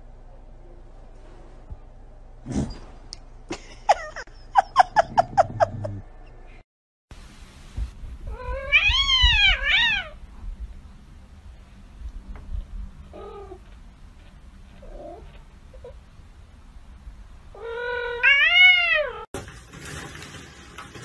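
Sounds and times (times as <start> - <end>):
cat meowing: 8.3 - 10.2, 17.6 - 19.2.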